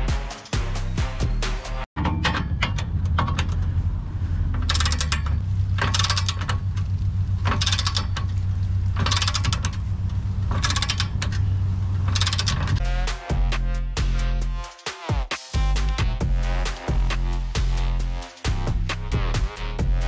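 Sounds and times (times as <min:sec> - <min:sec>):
background music with bass: 0:00.0 - 0:20.0
ratchet wrench clicking: 0:04.6 - 0:08.4, 0:09.0 - 0:09.9, 0:10.5 - 0:11.4, 0:12.0 - 0:12.8.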